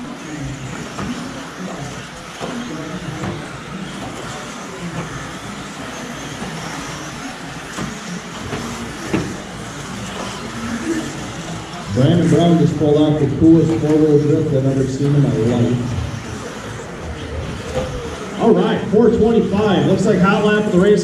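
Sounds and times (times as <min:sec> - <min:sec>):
rc car motors whining: 0:00.0 - 0:21.0.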